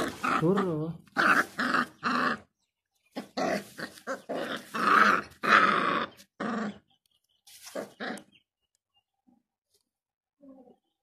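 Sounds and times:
puppies growling: 0.0 - 7.0, 7.8 - 8.4.

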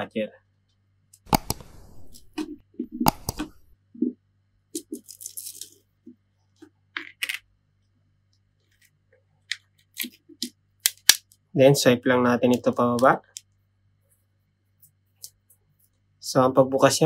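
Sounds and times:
plastic pick clicking and scraping: 1.2 - 3.7.

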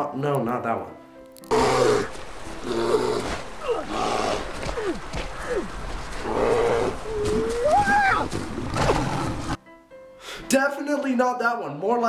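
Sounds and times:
steady hiss: 1.5 - 7.6
bear growling and roaring: 1.5 - 9.6
short falling cries: 6.9 - 8.4.

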